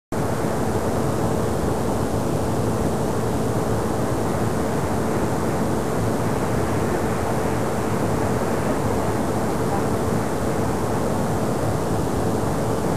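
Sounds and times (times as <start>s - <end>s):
faint steady hum: 0.2s - 12.9s
loud hiss and rumble: 0.2s - 12.9s.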